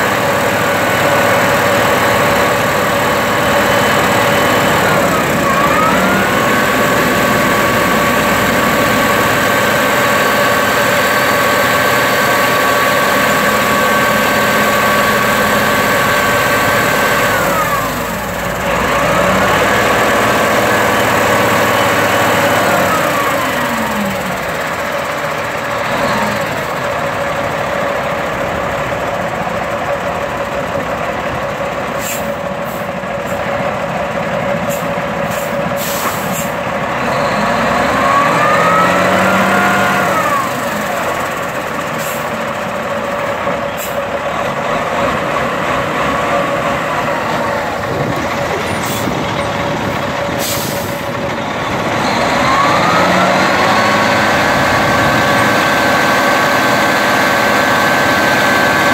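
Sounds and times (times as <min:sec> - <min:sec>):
diesel truck engine revving: 0:00.0 - 0:58.9
hydraulic pump whine: 0:00.4 - 0:10.8.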